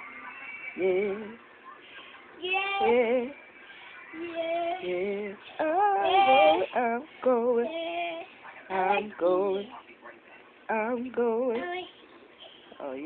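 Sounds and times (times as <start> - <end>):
boy singing gospel song: 0.0 - 1.4, 2.3 - 9.8, 10.7 - 12.0.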